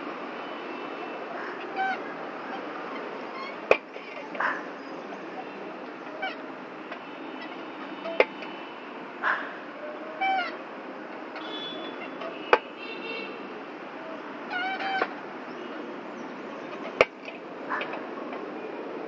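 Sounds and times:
seesaw squeaking: 0:01.6 - 0:04.4.

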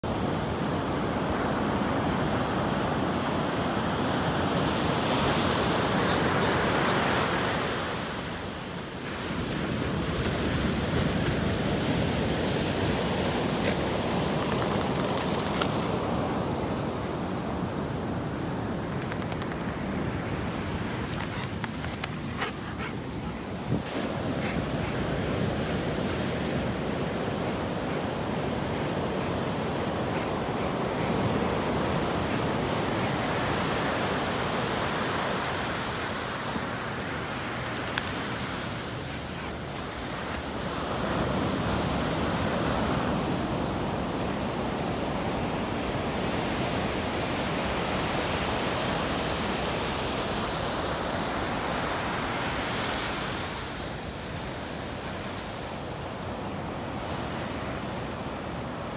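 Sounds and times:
ocean surf breaking: 0:01.1 - 0:43.8.

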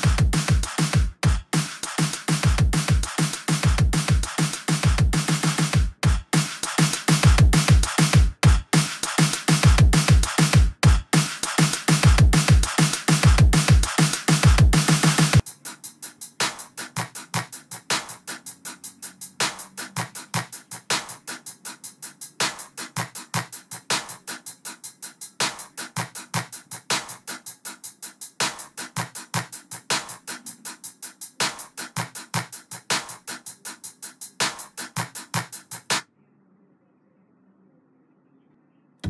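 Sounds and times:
kick drums: 0:00.0 - 0:01.7, 0:02.3 - 0:06.5, 0:07.1 - 0:08.9, 0:09.5 - 0:11.2, 0:11.9 - 0:15.4
hi-hat and snare hits: 0:00.0 - 0:36.0
programmed trap drum beat: 0:00.0 - 0:36.0.

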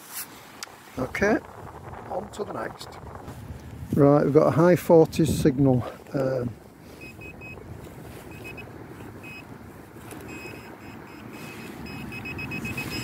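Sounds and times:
steady low rumble: 0:00.9 - 0:13.0
pinpointer short high beeps: 0:07.0 - 0:07.6, 0:08.3 - 0:09.5, 0:10.2 - 0:13.0.

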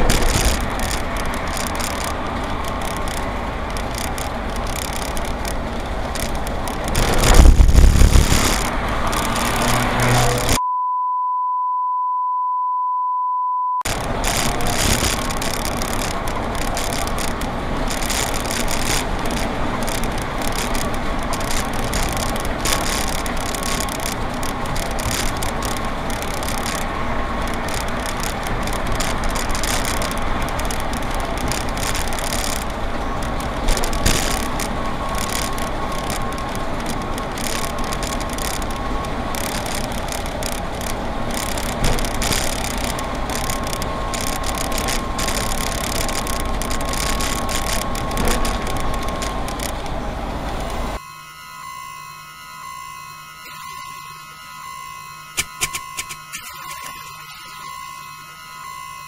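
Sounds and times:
bus engine and road noise: 0:00.0 - 0:10.6, 0:13.9 - 0:51.0
censor bleep: 0:10.6 - 0:13.9.

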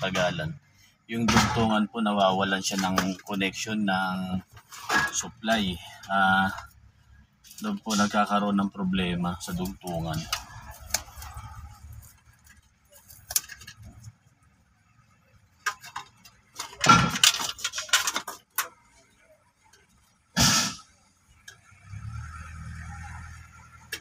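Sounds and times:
wires and connectors clicking rustling: 0:09.4 - 0:14.3, 0:15.5 - 0:19.0.

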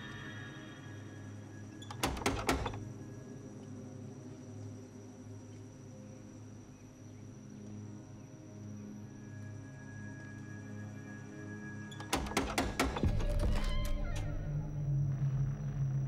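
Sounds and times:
low horror drone: 0:00.0 - 0:01.8, 0:12.2 - 0:16.0
sharp knocks: 0:02.0 - 0:02.8.

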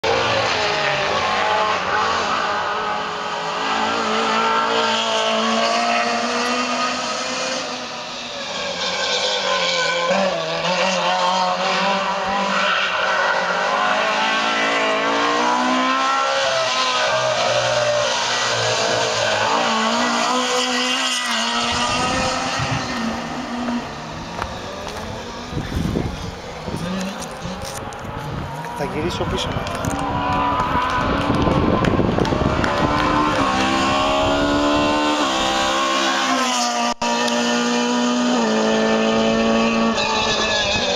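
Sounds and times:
rally car engine at full throttle: 0:00.0 - 0:40.9.

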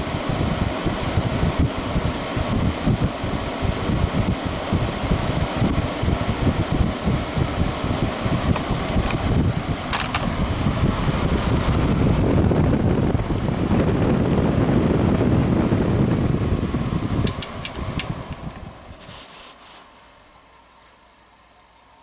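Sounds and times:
air conditioner blower running: 0:00.0 - 0:22.0
sharp clicks: 0:17.0 - 0:18.5.

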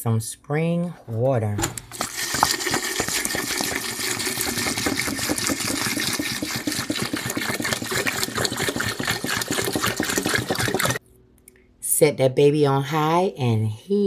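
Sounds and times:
water pouring into metal pot: 0:01.9 - 0:11.0.

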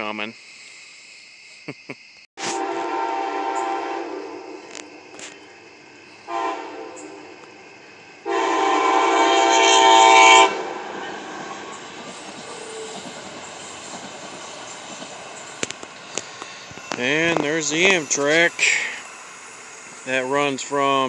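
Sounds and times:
train air horn blasts: 0:02.4 - 0:05.5, 0:06.1 - 0:07.4, 0:08.2 - 0:11.8
train rumbling past: 0:02.6 - 0:21.0.

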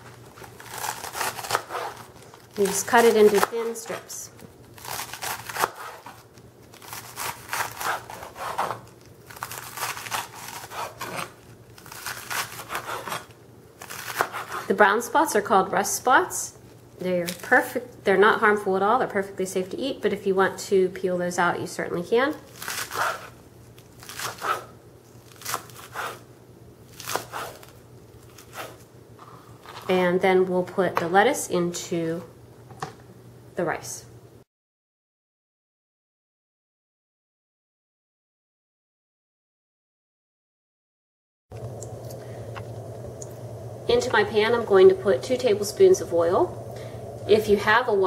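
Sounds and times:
knife slicing lettuce on cutting board: 0:00.5 - 0:04.1, 0:04.8 - 0:14.8, 0:22.5 - 0:23.4, 0:24.0 - 0:24.7, 0:25.3 - 0:26.2, 0:26.9 - 0:29.8.

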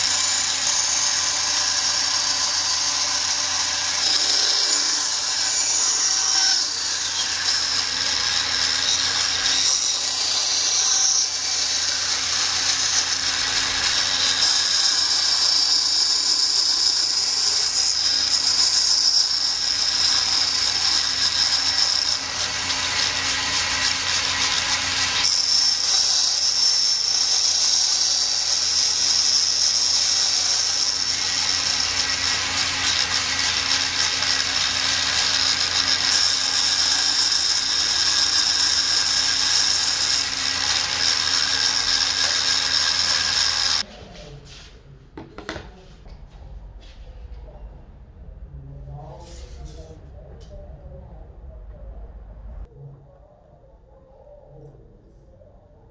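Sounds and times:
bandsaw cutting wood: 0:00.0 - 0:43.9.

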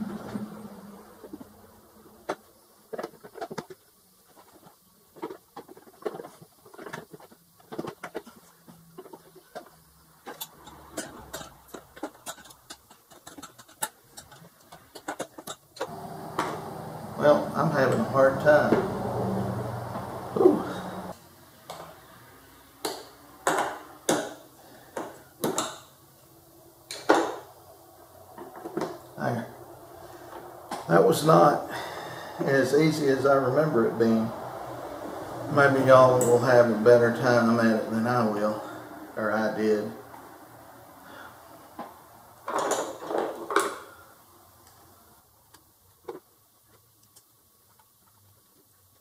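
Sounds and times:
scraping and rustling: 0:00.0 - 0:16.9
metallic clicks and knocks: 0:10.3 - 0:16.5.

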